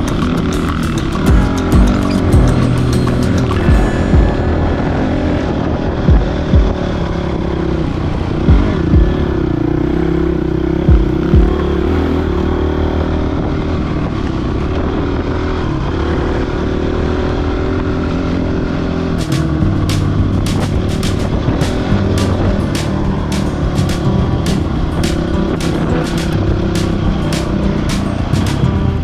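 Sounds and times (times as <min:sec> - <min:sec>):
low thumps: 0:00.0 - 0:07.0, 0:08.5 - 0:09.4, 0:10.9 - 0:11.6, 0:19.2 - 0:29.0
dirt bike engine running: 0:00.0 - 0:29.0.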